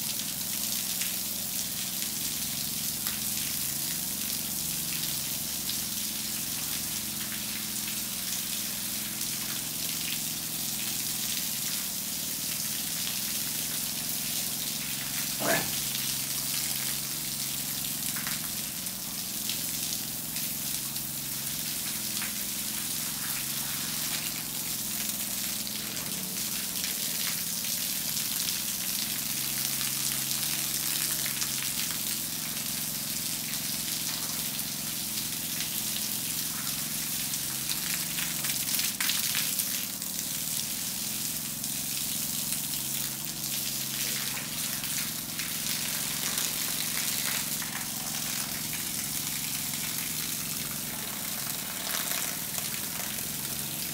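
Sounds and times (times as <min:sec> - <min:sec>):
hose water spraying on concrete: 0:00.0 - 0:53.9.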